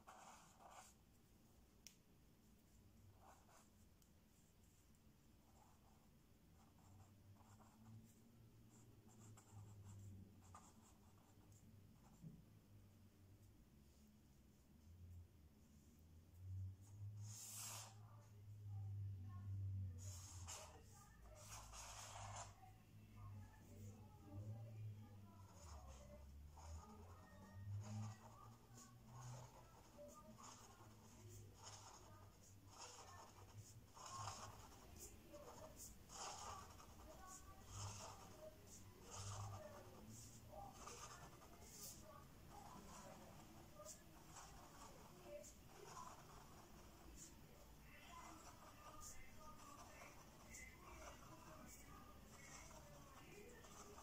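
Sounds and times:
pen scratching on paper: 0:00.0 - 0:01.0, 0:03.1 - 0:03.8, 0:05.4 - 0:12.3, 0:17.1 - 0:18.4, 0:19.9 - 0:22.8, 0:23.4 - 0:54.0.

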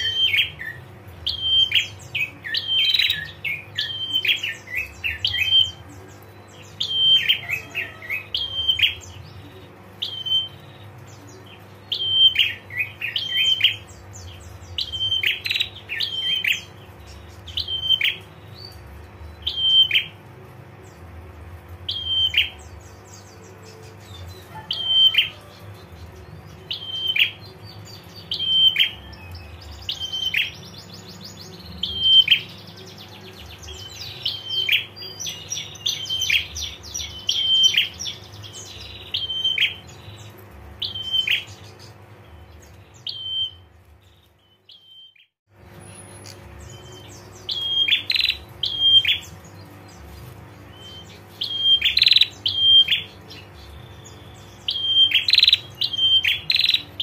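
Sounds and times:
bird dry trill: 0:00.0 - 0:20.2, 0:21.8 - 0:57.0
bird calls: 0:00.0 - 0:57.0
low hum: 0:25.5 - 0:55.9.

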